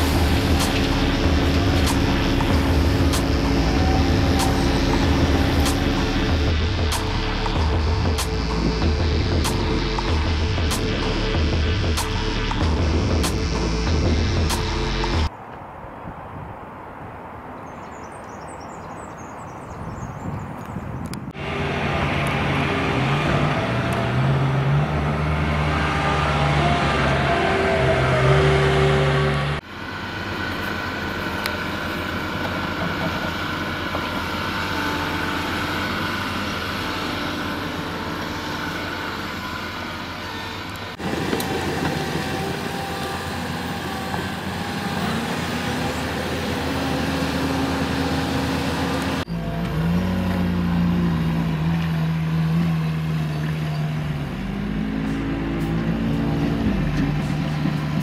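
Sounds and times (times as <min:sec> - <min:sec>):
construction machine diesel engines: 0:00.0 - 0:15.3, 0:21.0 - 0:58.0.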